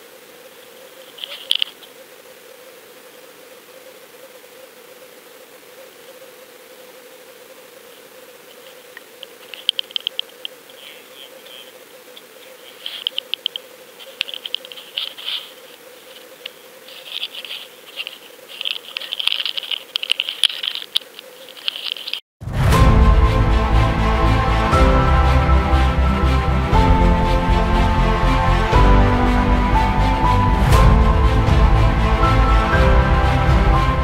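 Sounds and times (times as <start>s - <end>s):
faint steady hum: 0.0s - 22.2s
rattling and scratching in net: 12.7s - 15.6s, 16.9s - 22.2s.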